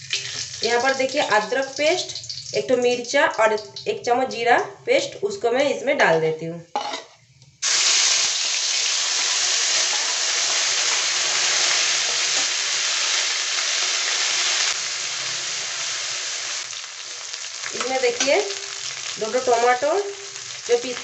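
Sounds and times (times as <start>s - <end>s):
paste sizzling in hot oil: 0.0s - 3.1s, 7.6s - 21.0s.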